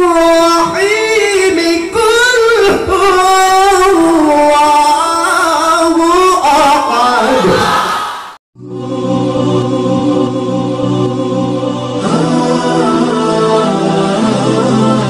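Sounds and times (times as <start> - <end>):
man reciting melodically: 0.0 - 7.9.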